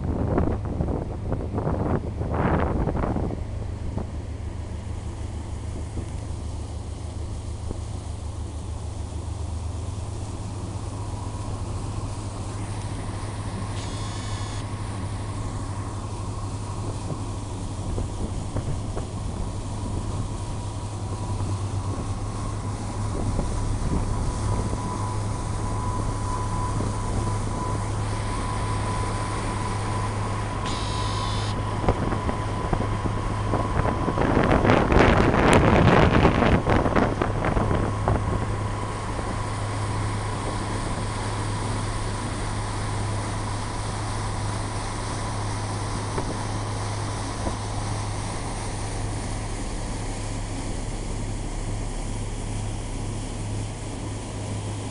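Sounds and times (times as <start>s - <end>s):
wind buffeting microphone: 0.0s - 6.5s, 14.8s - 30.8s, 31.6s - 43.2s
ferry engine drone: 0.0s - 54.9s
faint steady tone: 12.4s - 16.8s, 22.1s - 32.7s.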